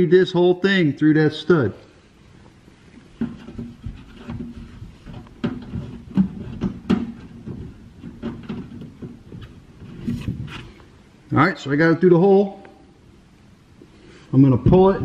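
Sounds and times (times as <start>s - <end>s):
rustling: 2.3s - 11.1s.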